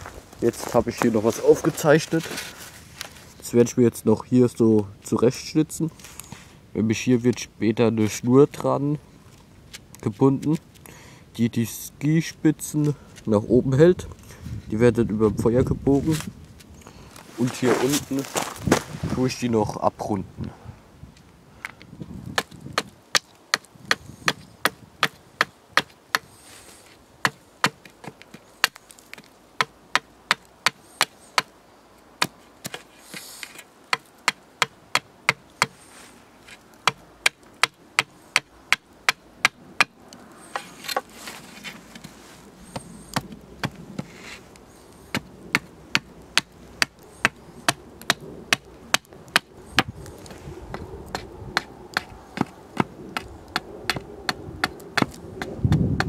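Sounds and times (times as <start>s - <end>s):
hatchet chopping wood: 22.4s - 26.3s, 27.2s - 31.5s, 32.2s - 35.8s, 36.8s - 41.1s, 42.7s - 44.1s, 45.1s - 49.9s, 50.7s - 56.0s.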